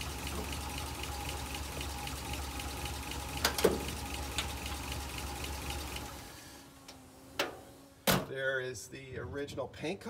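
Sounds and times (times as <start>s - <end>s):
truck engine idling: 0.0s - 6.4s.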